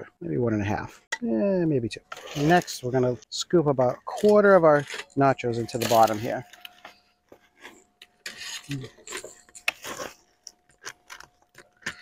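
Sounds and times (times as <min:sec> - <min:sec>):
metal tongs scraping baking sheet: 0:02.1 - 0:03.0, 0:04.0 - 0:06.6, 0:07.6 - 0:10.2
tortilla chips crunching: 0:09.6 - 0:12.0.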